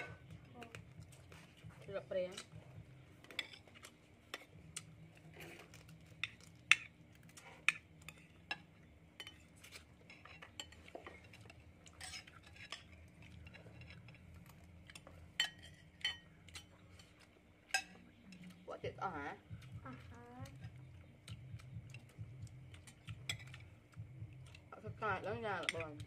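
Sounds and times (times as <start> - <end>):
spoons clinking on ceramic plates: 7.6 - 18.6, 22.8 - 23.7.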